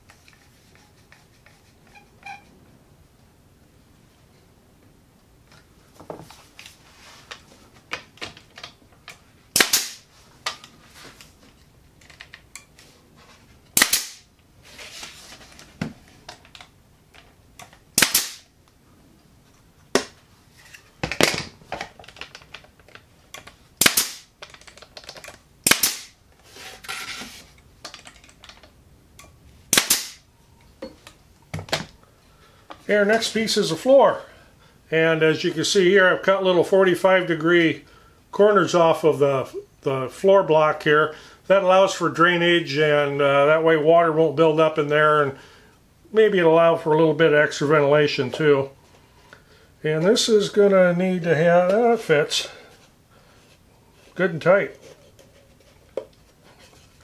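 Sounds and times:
nail gun shots: 0:09.5 - 0:10.0, 0:13.8 - 0:14.3, 0:18.0 - 0:18.5, 0:23.8 - 0:24.3, 0:25.6 - 0:26.2, 0:29.7 - 0:30.2.

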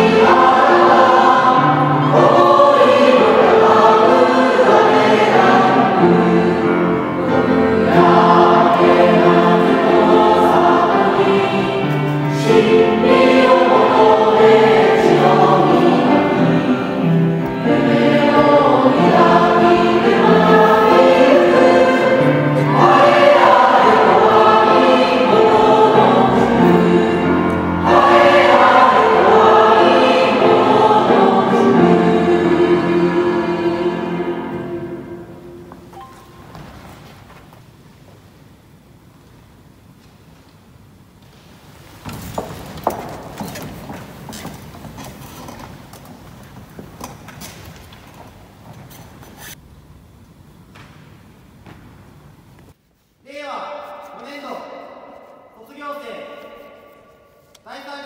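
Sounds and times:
choir singing: 0:00.0 - 0:36.1
grand piano accompaniment: 0:00.0 - 0:37.5.

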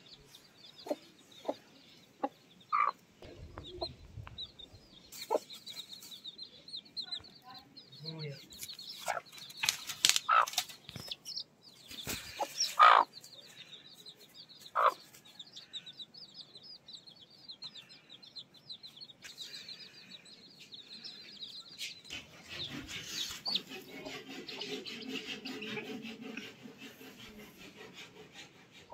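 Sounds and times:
chicks peeping: 0:00.0 - 0:28.9
hen clucking loudly: 0:02.2 - 0:04.5, 0:10.2 - 0:10.6, 0:12.1 - 0:13.1, 0:14.7 - 0:15.0, 0:21.8 - 0:28.9.

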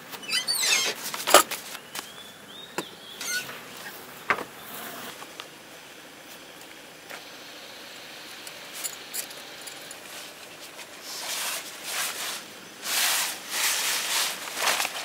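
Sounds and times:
tarp fabric rustling and swishing: 0:11.0 - 0:15.0.

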